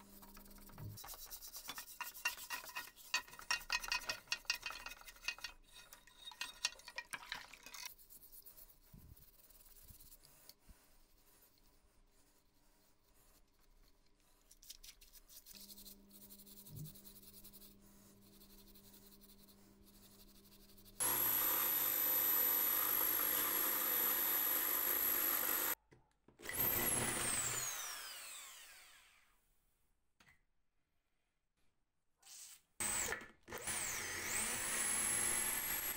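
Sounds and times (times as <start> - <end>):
steel pad scrubbing metal parts: 0.2 - 8.0
electric drill whining: 21.0 - 25.8, 26.4 - 29.2, 32.8 - 35.9.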